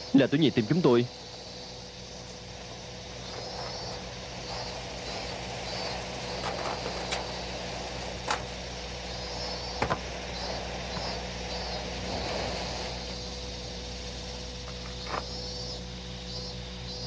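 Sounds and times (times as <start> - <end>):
background hum and hiss: 0.0 - 17.0
faint high chirps: 8.9 - 17.0.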